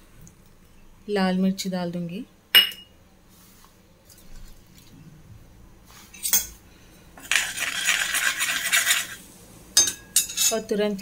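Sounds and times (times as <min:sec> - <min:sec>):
spoon stirring and scraping bowl: 0:07.2 - 0:10.6
spoon clinking against steel bowl: 0:09.8 - 0:10.6.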